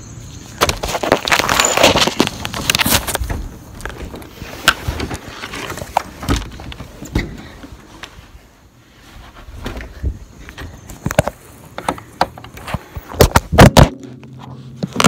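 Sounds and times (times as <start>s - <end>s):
rustling: 0.3s - 15.0s
knocks and thumps: 9.6s - 15.0s.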